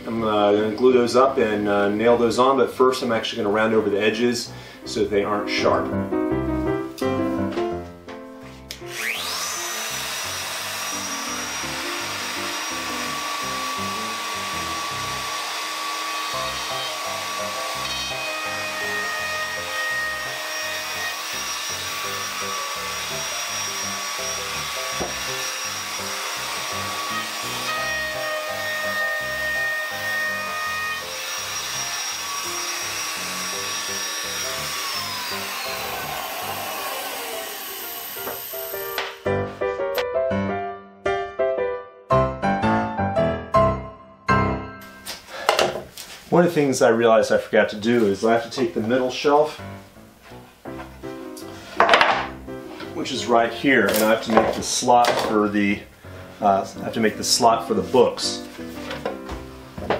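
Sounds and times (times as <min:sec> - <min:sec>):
wood router whining: 0:08.7 - 0:39.4.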